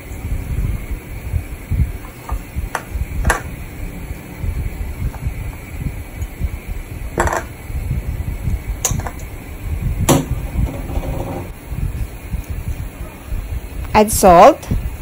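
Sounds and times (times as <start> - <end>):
low rumble: 1.3 - 12.8
kitchen bowls knocking: 10.1 - 11.5.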